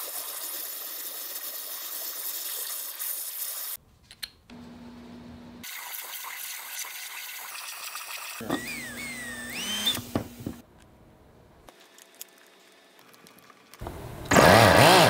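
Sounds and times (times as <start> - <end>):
waterjet cutter hissing: 8.3 - 10.6.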